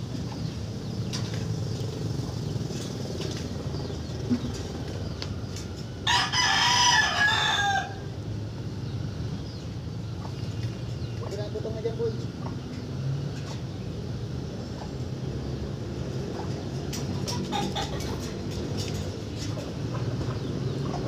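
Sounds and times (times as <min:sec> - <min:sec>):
low traffic rumble: 0:00.0 - 0:21.0
rooster crowing: 0:06.0 - 0:08.1.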